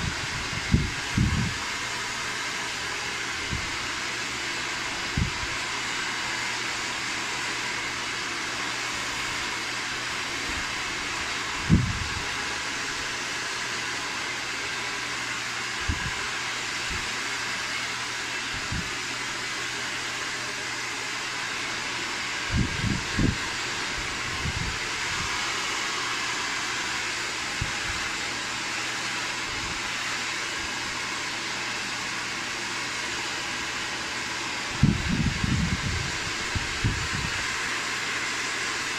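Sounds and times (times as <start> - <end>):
hair dryer blowing: 0.0 - 38.9.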